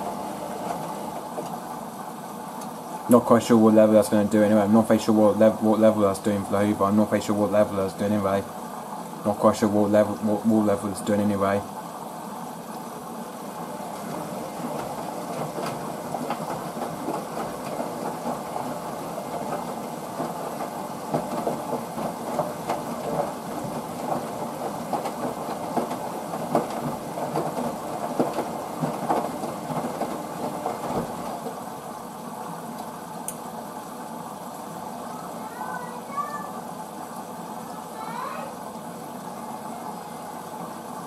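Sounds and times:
washing machine drum turning in water: 0.0 - 1.9, 12.8 - 31.7.

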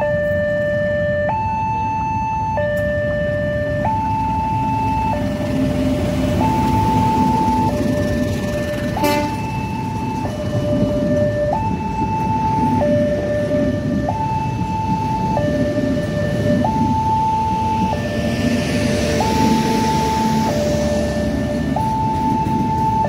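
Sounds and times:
two-tone level-crossing alarm: 0.0 - 23.0
train coaches rumbling: 4.2 - 14.0, 17.6 - 23.0.

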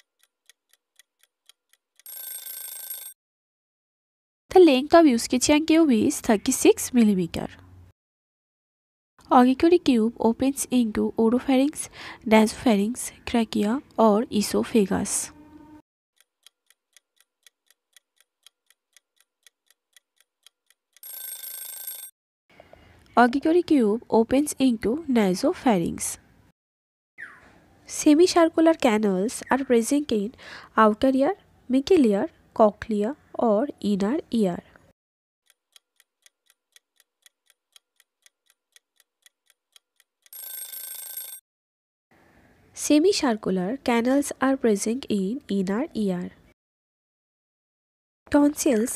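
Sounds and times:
clock-like ticking: 0.0 - 2.3, 16.2 - 21.2, 35.4 - 40.4
alarm ringing: 2.1 - 3.2, 21.0 - 22.1, 40.4 - 41.4.

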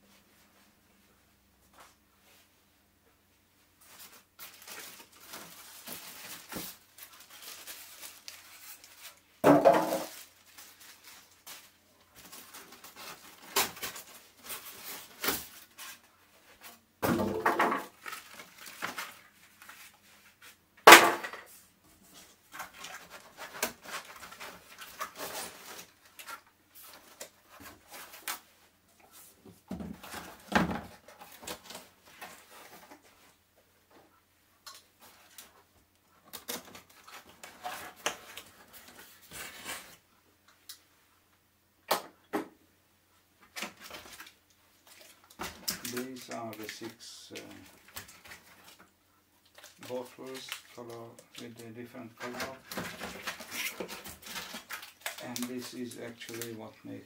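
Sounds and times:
plastic wrapping crinkling: 3.8 - 16.7, 17.4 - 20.6, 22.2 - 28.5, 34.6 - 40.0, 43.4 - 57.0
cardboard rustling: 3.8 - 20.6, 22.1 - 33.4, 36.3 - 40.0, 49.5 - 57.0.

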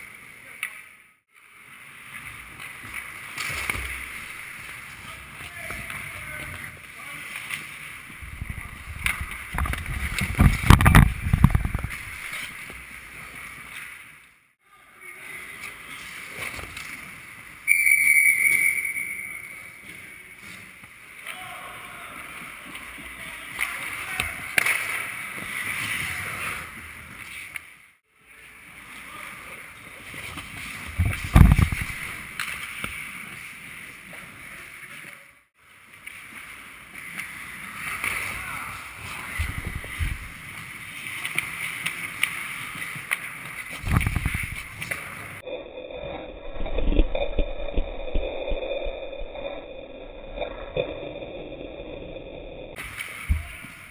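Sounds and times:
skates scraping on ice: 0.0 - 14.4, 15.2 - 17.6, 19.4 - 21.3, 22.0 - 45.5
referee's whistle: 17.6 - 19.8.

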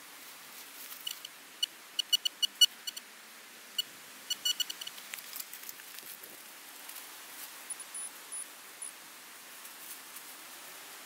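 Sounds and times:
metal detector beeping: 2.0 - 3.0, 4.3 - 4.9.

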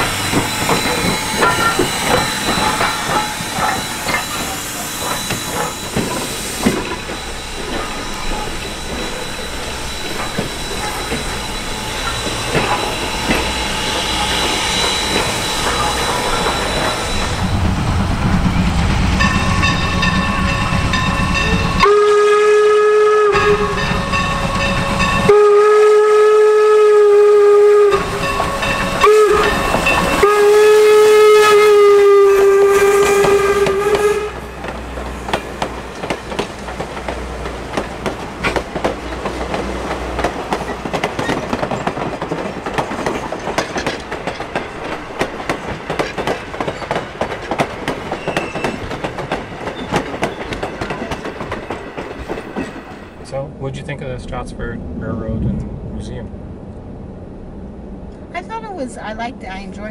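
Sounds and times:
train wheels clattering over rail joints: 0.0 - 21.9, 32.0 - 53.2
steam locomotive whistle blasts: 19.2 - 34.7.

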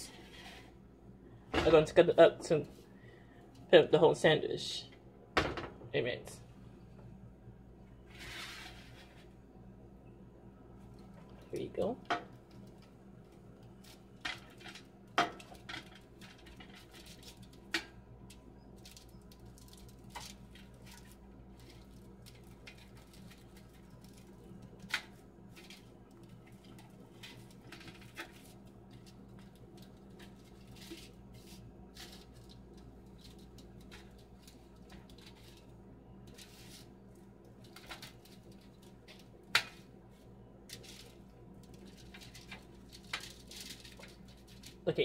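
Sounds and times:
knife scraping on foil tray: 8.1 - 9.2.

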